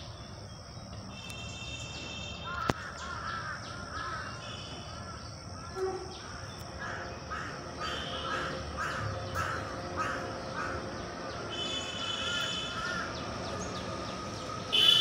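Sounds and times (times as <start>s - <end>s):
short caw-like animal calls: 6.8s - 10.8s.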